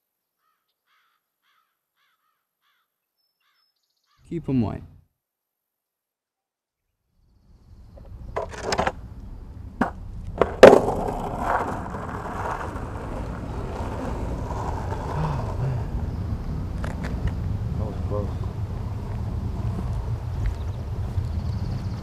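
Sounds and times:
skateboard wheels rolling on asphalt: 7.4 - 22.0
skateboard clacks: 8.0 - 9.0, 9.8 - 17.4.

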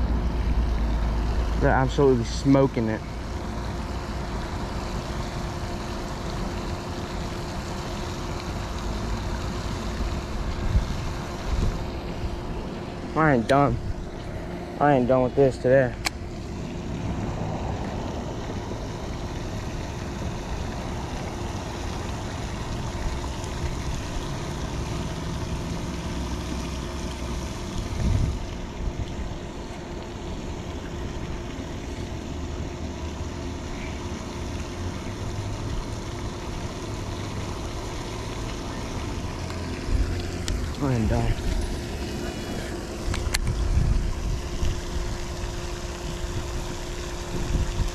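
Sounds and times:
faint steady hum: 0.0 - 47.9
fountain spraying: 0.0 - 47.9
wind on microphone: 27.8 - 29.2, 43.2 - 45.0, 47.3 - 47.9.

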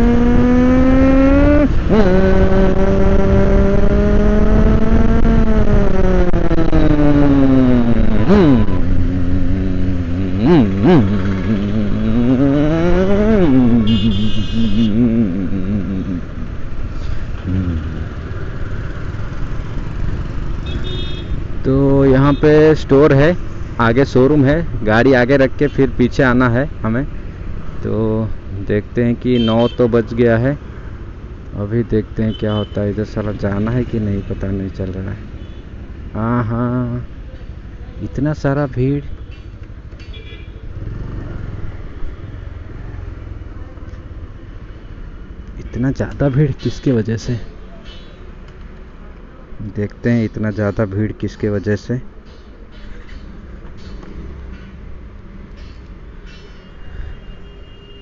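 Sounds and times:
motorcycle engine running: 0.0 - 16.4
wind and road noise: 0.0 - 58.0.

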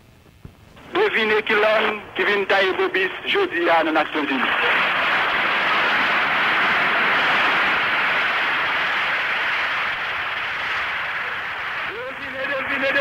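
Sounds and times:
audience applauding: 4.3 - 13.0.

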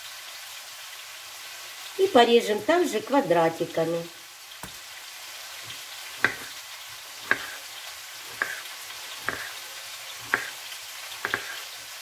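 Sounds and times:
vegetables sizzling in a pan: 0.0 - 12.0
knife tapping on cutting board: 5.7 - 6.5, 7.2 - 7.6, 8.3 - 8.6, 9.2 - 9.6, 10.2 - 10.6, 11.2 - 11.6.

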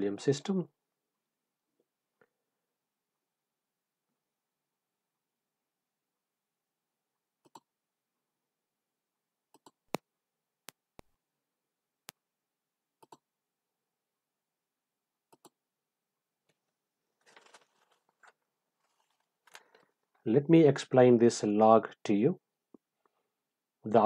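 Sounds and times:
computer mouse clicks: 7.4 - 7.7, 9.5 - 10.0, 13.0 - 13.2, 15.3 - 15.6
soft rustle: 17.2 - 19.5.

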